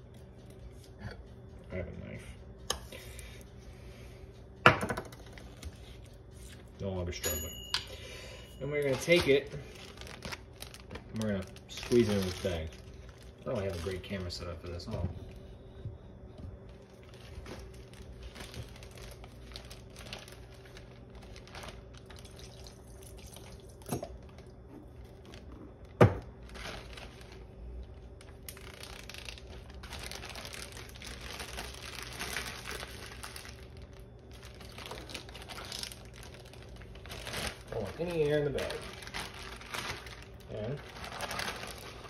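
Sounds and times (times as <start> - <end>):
plastic bag crinkling: 8.6 - 15.4, 16.6 - 42.0
dressing pouring: 22.0 - 24.2.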